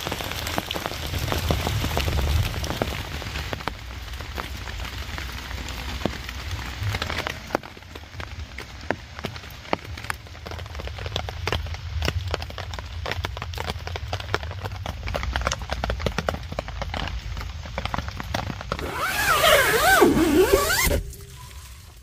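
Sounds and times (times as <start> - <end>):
rain pattering: 0.0 - 18.9
tent zipper rasping: 18.8 - 21.3.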